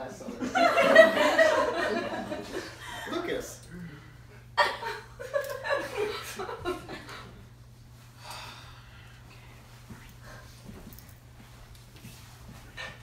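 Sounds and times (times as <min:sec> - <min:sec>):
quiet breathing and murmurs: 0:08.0 - 0:13.0.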